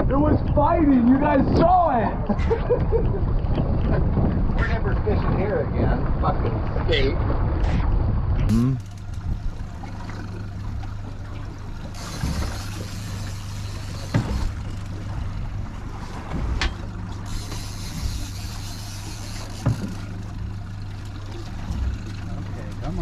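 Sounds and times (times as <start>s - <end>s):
boat motor idling: 8.5s - 23.0s.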